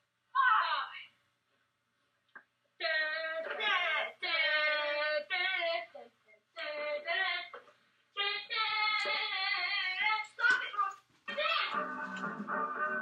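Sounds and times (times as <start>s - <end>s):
child singing: 2.8s - 7.6s, 8.2s - 11.7s.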